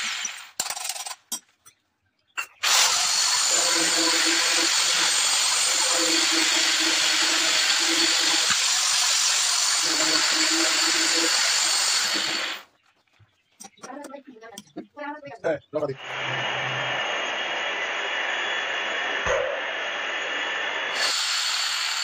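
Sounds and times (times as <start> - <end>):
angle grinder cutting stone: 2.5 - 12.6
grinder winding down: 2.6 - 12.7, 20.9 - 22.0.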